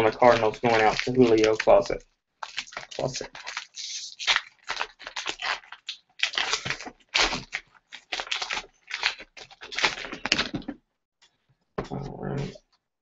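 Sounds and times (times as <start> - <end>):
foil wrapper crinkling and tearing: 0.0 - 10.6.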